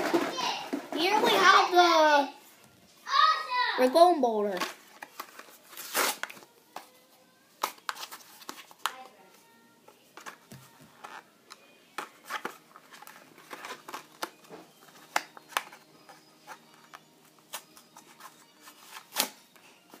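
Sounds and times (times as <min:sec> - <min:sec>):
plastic packaging torn open: 0:05.0 - 0:06.5.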